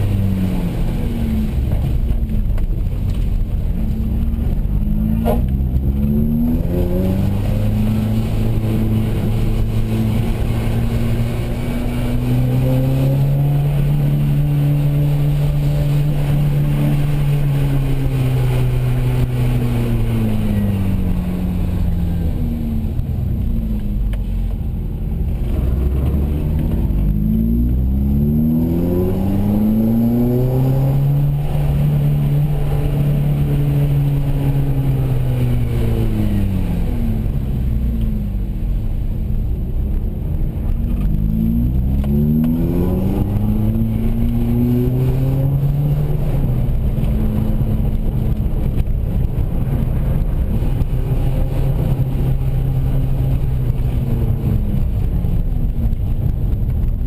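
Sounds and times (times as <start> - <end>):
car engine from inside cabin: 0.0 - 57.0.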